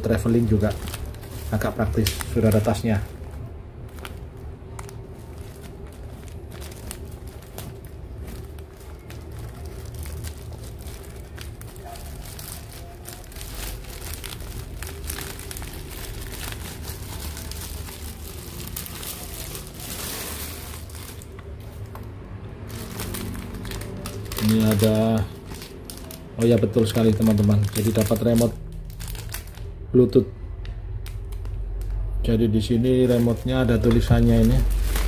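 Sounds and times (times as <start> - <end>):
fabric bag rustling: 0.0 - 21.8, 33.0 - 35.0
plastic wrapping crinkling: 0.0 - 35.0.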